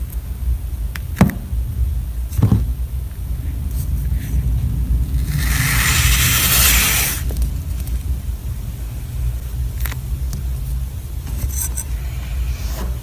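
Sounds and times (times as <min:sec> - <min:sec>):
steady low rumble: 0:00.0 - 0:13.0
sand crackling: 0:04.9 - 0:08.0
metal scoop scraping sand: 0:05.2 - 0:07.3.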